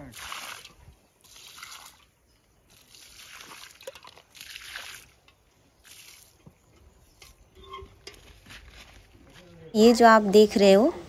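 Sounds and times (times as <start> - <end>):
water splashing from bucket: 0.0 - 6.4.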